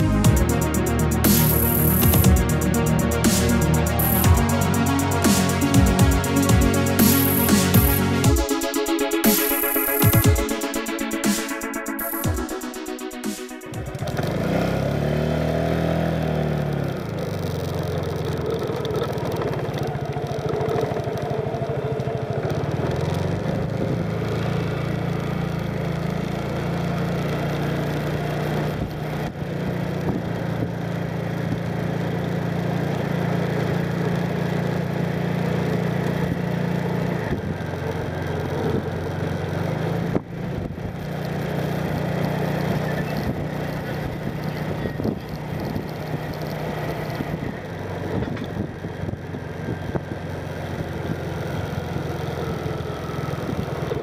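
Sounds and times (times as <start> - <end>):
motorcycle engine running: 0.0 - 54.0
wind and road noise: 13.8 - 33.5, 34.2 - 54.0.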